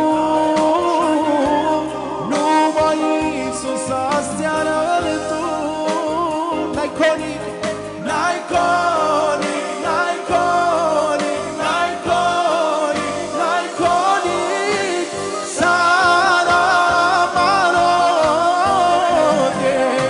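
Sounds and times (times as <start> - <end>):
electronic keyboard with steady beat: 0.0 - 20.0
man singing with vibrato: 0.0 - 20.0
men singing along: 0.0 - 20.0.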